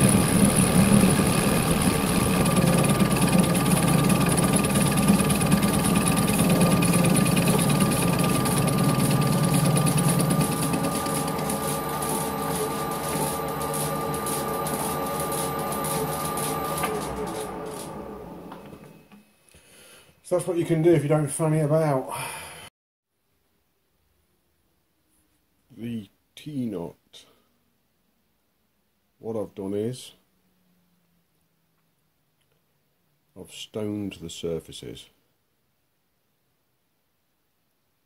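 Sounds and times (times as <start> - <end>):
rough milling cutting noise: 0.0 - 18.9
lathe machine whine: 0.0 - 19.2
machine winding down: 0.0 - 19.2.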